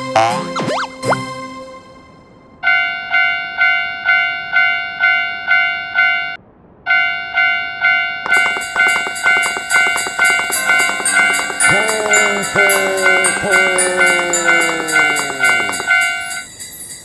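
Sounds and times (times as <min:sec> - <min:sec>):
railroad crossing bell ringing: 0:02.6 - 0:17.0
sleigh bells jingling: 0:08.3 - 0:17.0.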